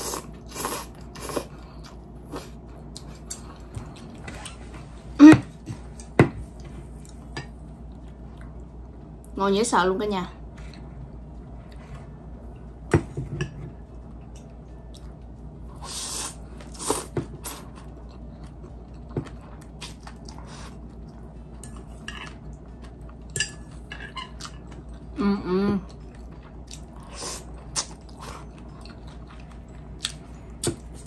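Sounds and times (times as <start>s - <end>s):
person chewing: 25.9s - 31.0s.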